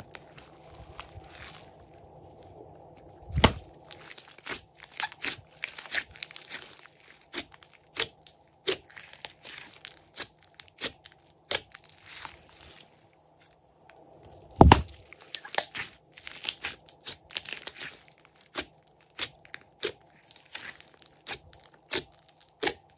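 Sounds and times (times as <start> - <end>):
slime squeezed popping and crackling: 3.3 - 12.4, 14.6 - 22.9.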